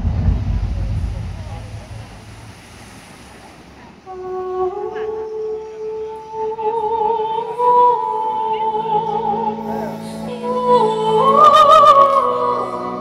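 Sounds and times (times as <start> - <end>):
low held chords: 0.0 - 3.1
woman singing operatic notes: 4.0 - 13.0.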